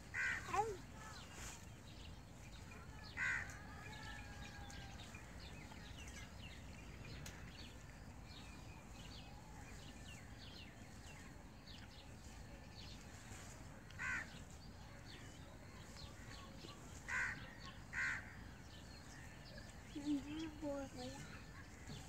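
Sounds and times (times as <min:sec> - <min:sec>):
faint background noise: 0:00.0 - 0:22.0
small birds chirping: 0:00.0 - 0:22.0
crow cawing: 0:00.2 - 0:00.5, 0:03.2 - 0:03.5, 0:14.0 - 0:14.3, 0:17.1 - 0:18.3.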